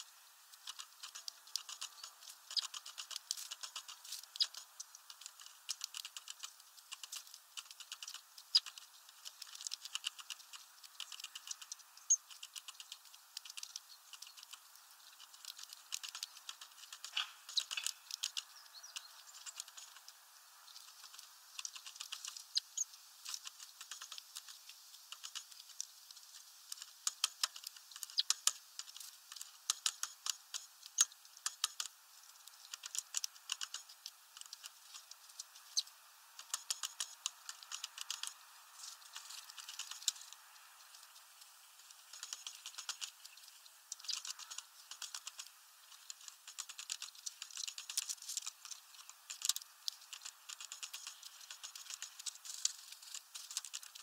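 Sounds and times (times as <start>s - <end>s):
bird pecking at feeder: 0.0s - 54.0s.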